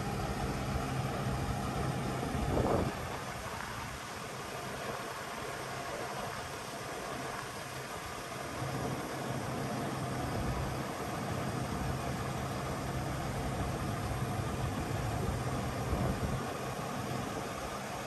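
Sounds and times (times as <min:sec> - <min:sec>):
diesel truck engine running: 0:00.0 - 0:03.3, 0:08.6 - 0:18.0.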